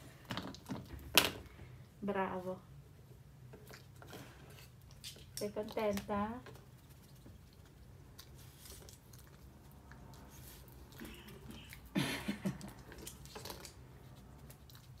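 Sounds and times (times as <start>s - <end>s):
dog chewing: 6.5s - 11.9s, 12.6s - 15.0s.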